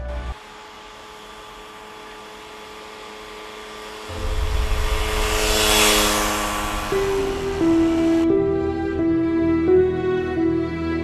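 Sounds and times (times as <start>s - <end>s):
background music: 0.0s - 0.4s, 6.1s - 11.0s
motor scooter passing by: 0.0s - 10.6s.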